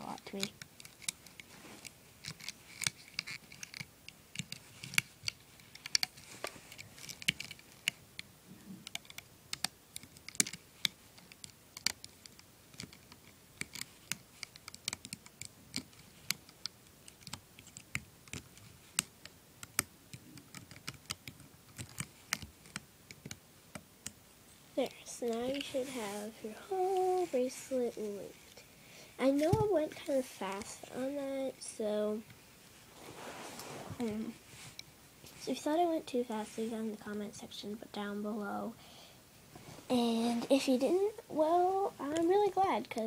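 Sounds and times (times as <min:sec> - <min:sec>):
plastic hook clicking on loom pegs: 0:02.2 - 0:06.1.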